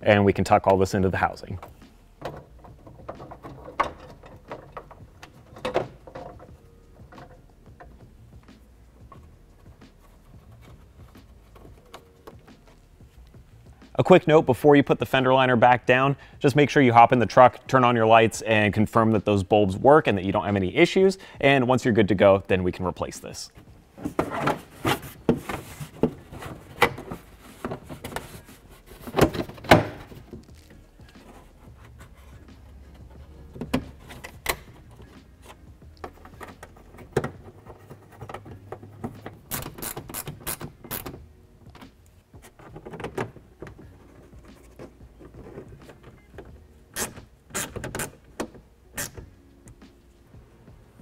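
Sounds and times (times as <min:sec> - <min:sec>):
plastic rubbing and knocking: 0:23.6 - 0:40.9, 0:42.4 - 0:48.7.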